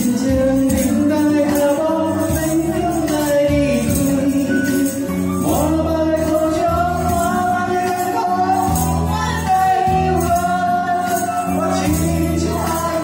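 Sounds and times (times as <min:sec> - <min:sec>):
man singing through microphone: 0:00.0 - 0:13.0
recorded backing music: 0:00.0 - 0:13.0
tambourines jingling: 0:00.0 - 0:13.0.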